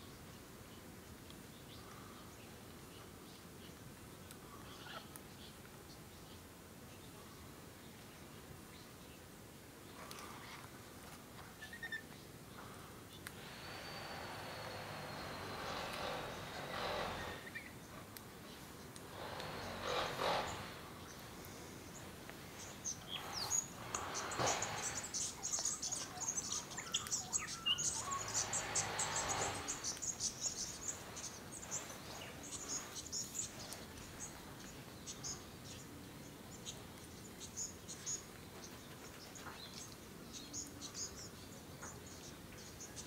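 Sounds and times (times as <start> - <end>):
soft rushing noise: 13.2 - 34.8.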